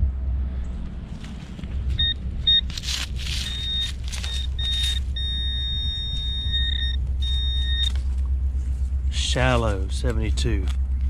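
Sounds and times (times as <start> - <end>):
rustling in leaf litter: 1.0 - 5.2
metal detector beeping tone: 2.0 - 8.0.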